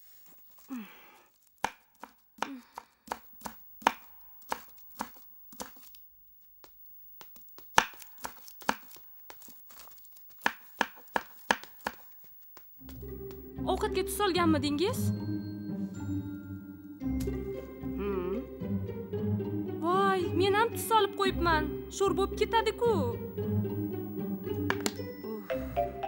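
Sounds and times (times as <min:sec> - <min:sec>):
knife chopping on wooden board: 0:01.6 - 0:05.9, 0:07.7 - 0:09.0, 0:10.4 - 0:12.2.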